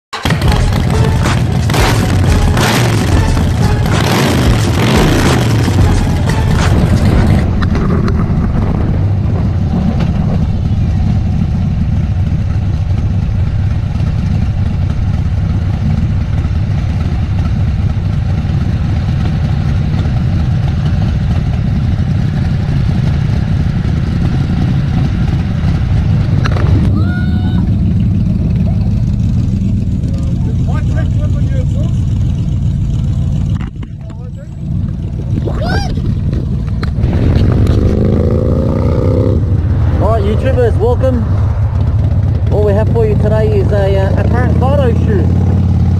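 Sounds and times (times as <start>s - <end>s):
motorcycle engine running: 0.1s - 45.9s
wind buffeting microphone: 6.6s - 18.8s, 34.8s - 43.9s.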